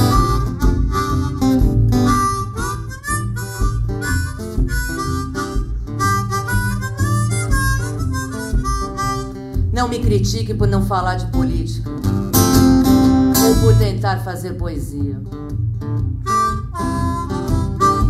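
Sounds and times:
harmonica melody with bent notes: 0.0s - 10.1s, 15.5s - 18.0s
acoustic guitar accompaniment: 0.0s - 18.0s.

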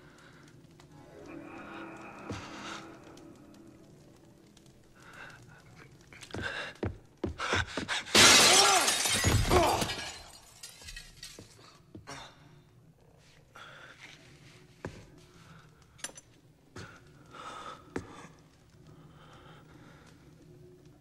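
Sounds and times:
mirror crashing and shattering: 8.2s - 11.3s
glass scattering on wooden floor: 8.2s - 11.6s.

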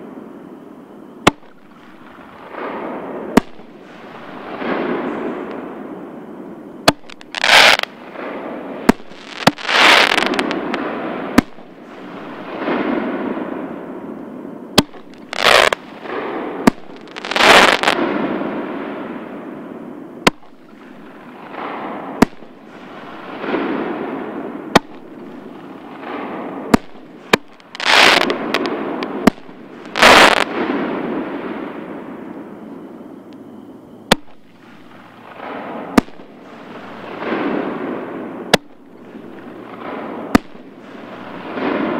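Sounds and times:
firework booms echoing: 1.2s - 6.0s, 6.8s - 14.2s, 14.8s - 19.6s, 20.2s - 32.3s, 34.1s - 41.9s
firework shells cracking: 14.8s - 15.8s.

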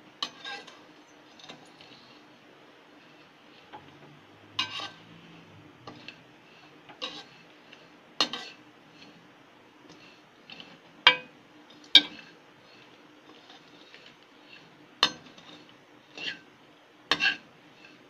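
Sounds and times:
spoon clinking on steel pan: 11.1s - 11.3s.

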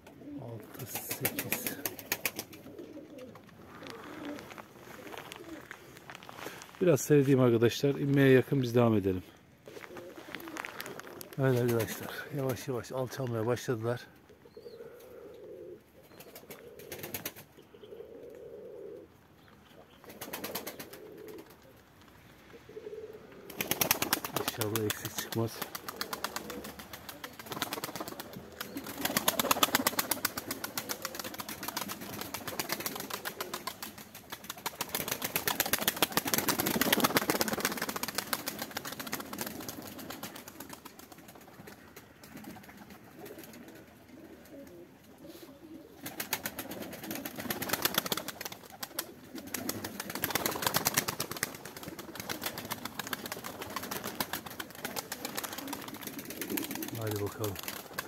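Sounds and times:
pigeons cooing: 0.0s - 6.6s, 9.6s - 12.5s, 14.0s - 58.0s
fast even crackle: 23.5s - 41.2s, 46.2s - 58.0s.

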